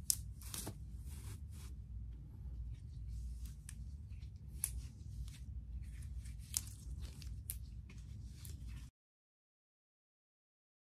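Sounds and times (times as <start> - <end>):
steady low hum: 0.0 - 8.9
fabric glove rustling: 0.1 - 2.0.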